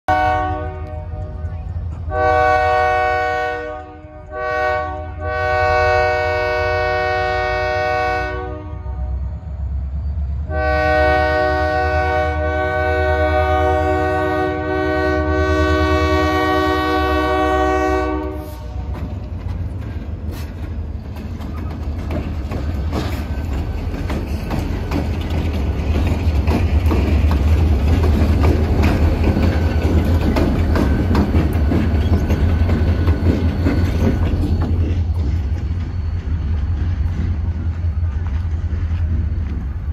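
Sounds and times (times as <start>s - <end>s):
locomotive horn blasts: 0.1s - 9.3s, 10.5s - 18.9s
train wheels clicking on rails: 15.3s - 39.9s.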